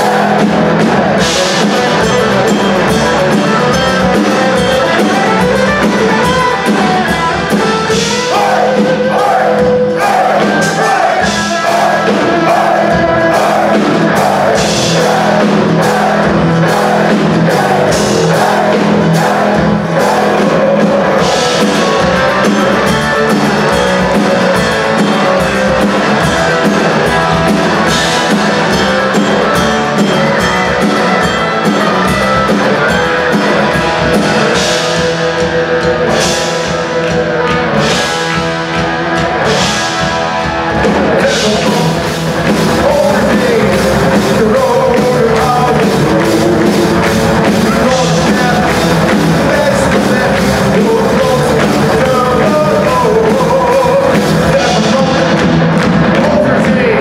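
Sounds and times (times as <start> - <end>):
sung vocals: 0.0 - 2.7, 7.9 - 25.7, 40.8 - 57.0
metal band playing live: 0.0 - 57.0.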